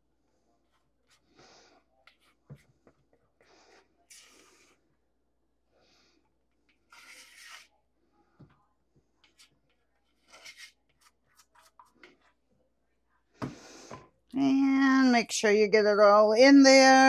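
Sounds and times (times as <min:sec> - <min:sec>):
spatula scraping a bowl: 0:06.7 - 0:07.8, 0:09.2 - 0:12.4.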